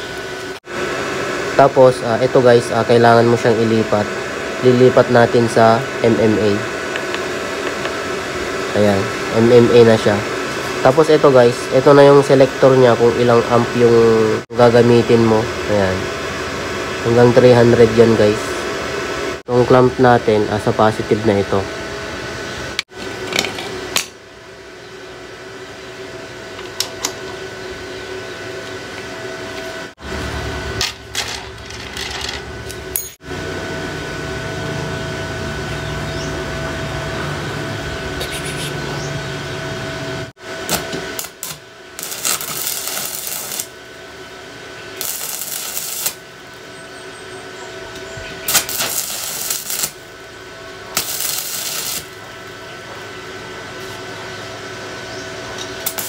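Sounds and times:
welding arc crackling: 40.7 - 44.2, 44.8 - 46.7, 47.9 - 52.5, 55.8 - 56.0.

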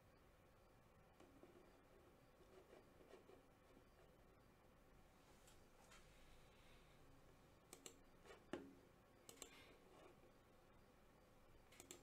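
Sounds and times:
faint sharp clicks: 7.7 - 8.0, 9.2 - 9.6, 11.7 - 12.0.

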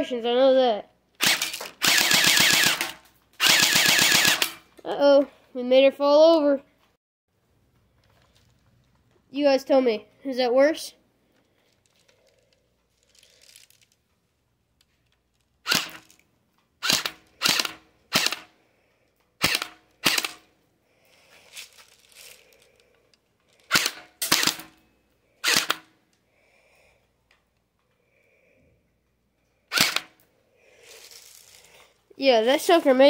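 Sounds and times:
airsoft gun shots: 1.2 - 4.6, 16.8 - 18.5, 19.4 - 20.4, 23.7 - 24.8, 25.4 - 25.9, 29.7 - 30.1.

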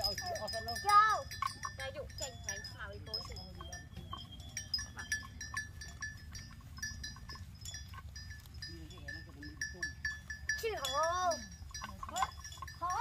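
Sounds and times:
cattle bell clinking: 0.0 - 13.0.

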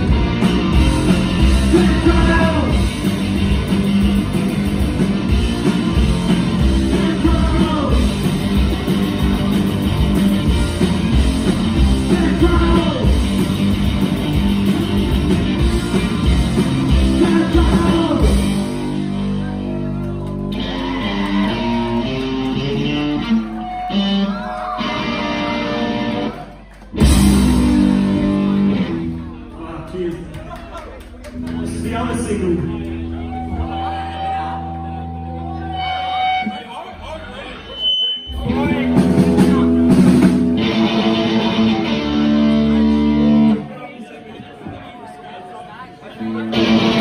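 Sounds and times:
electric guitar: 0.0 - 29.5, 38.3 - 43.7, 46.2 - 47.0
bass guitar: 0.0 - 36.5, 38.3 - 43.7, 46.2 - 47.0
drums: 0.0 - 36.7, 37.6 - 43.7, 46.2 - 47.0.

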